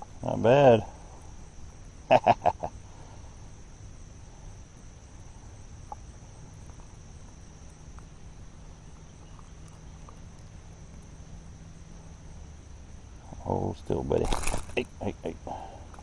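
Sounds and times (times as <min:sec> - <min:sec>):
insects chirring: 0:00.0 - 0:16.0
faint ticks: 0:05.8 - 0:08.1.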